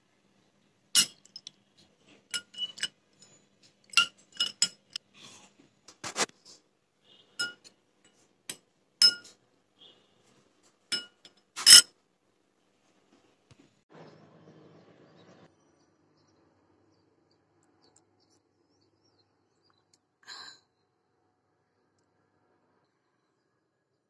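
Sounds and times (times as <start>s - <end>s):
spoon clinking glass and ice: 1.0s - 1.5s, 2.3s - 5.0s, 7.4s - 7.6s, 9.0s - 9.3s, 10.9s - 11.8s.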